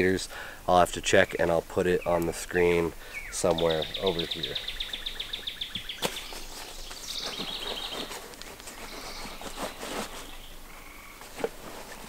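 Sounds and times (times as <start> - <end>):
bird trilling: 3.1 - 8.2, 8.8 - 11.1
gear rustling in rucksack: 6.0 - 10.6, 11.2 - 12.0.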